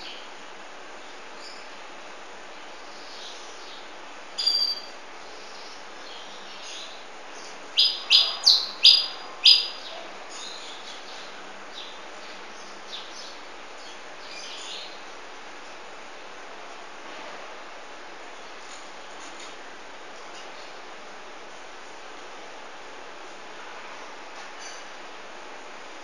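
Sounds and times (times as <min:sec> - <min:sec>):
canary chirping: 0:04.4 - 0:05.0, 0:07.7 - 0:11.2.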